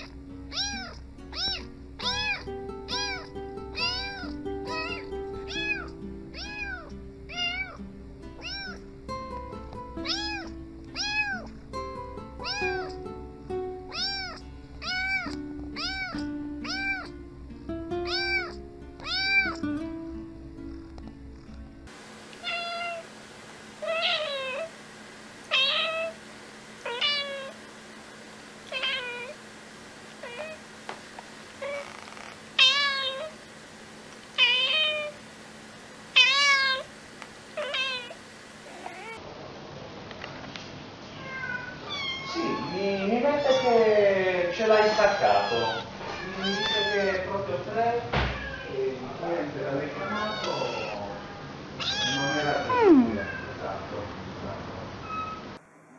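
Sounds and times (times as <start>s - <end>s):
adult cat meowing: 0.0s - 7.8s, 8.4s - 8.8s, 10.0s - 11.5s, 12.4s - 13.0s, 13.9s - 17.1s, 18.0s - 19.6s, 22.4s - 23.0s, 23.8s - 24.7s, 25.5s - 26.2s, 26.8s - 27.6s, 28.7s - 29.4s, 30.2s - 30.6s, 31.6s - 33.4s, 34.4s - 35.2s, 36.2s - 36.9s, 37.6s - 39.2s, 41.1s - 43.8s, 44.6s - 47.2s, 48.2s - 48.8s, 49.9s - 53.6s
kitten meowing: 0.0s - 7.8s, 8.4s - 8.8s, 10.0s - 11.6s, 12.4s - 13.0s, 13.9s - 17.2s, 18.0s - 19.6s, 22.4s - 23.0s, 23.8s - 24.7s, 25.5s - 26.2s, 26.9s - 27.6s, 28.7s - 29.4s, 30.2s - 30.6s, 31.6s - 33.4s, 34.4s - 35.2s, 36.2s - 36.9s, 37.6s - 39.2s, 41.2s - 43.8s, 44.6s - 47.2s, 49.9s - 51.2s, 51.8s - 53.5s
background music: 0.0s - 21.9s.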